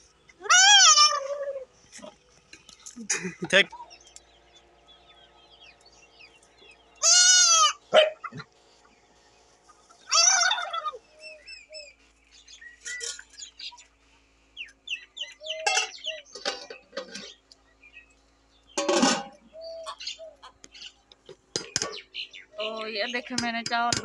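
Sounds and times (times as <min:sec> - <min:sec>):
small birds chirping: 0:00.0 - 0:24.0
goat kid bleating: 0:00.4 - 0:02.1, 0:07.0 - 0:07.8, 0:10.0 - 0:11.0.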